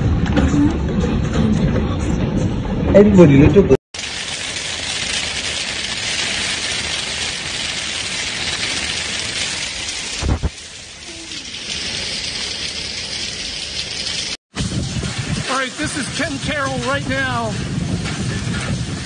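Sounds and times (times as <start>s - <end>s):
hail and rain pelting: 4.0s - 19.0s.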